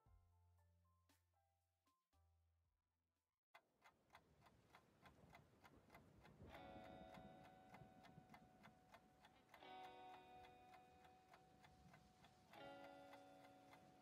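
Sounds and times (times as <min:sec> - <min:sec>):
ticking beat music: 0:04.1 - 0:14.0.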